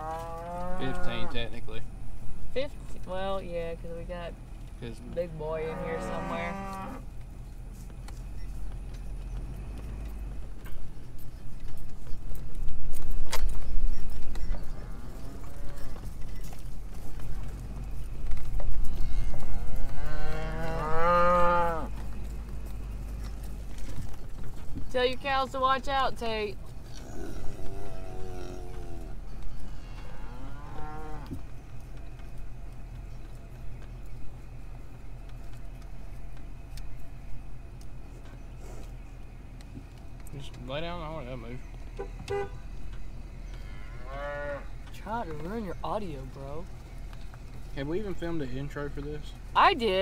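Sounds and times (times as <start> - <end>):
cattle mooing: 0.0 - 1.4, 5.4 - 7.1, 14.6 - 16.1, 18.9 - 22.0, 26.9 - 31.4, 43.5 - 44.7
truck rumbling: 0.0 - 50.0.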